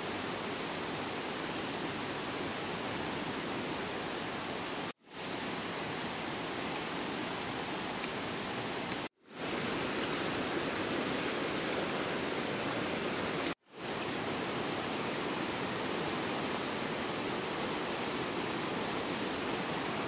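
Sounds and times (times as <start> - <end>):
fast-flowing river rushing: 5.2 - 20.0.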